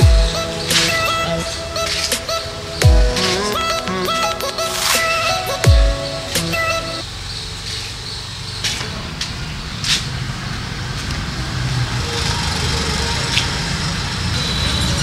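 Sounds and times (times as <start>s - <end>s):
scooter engine idling: 0.0s - 1.8s.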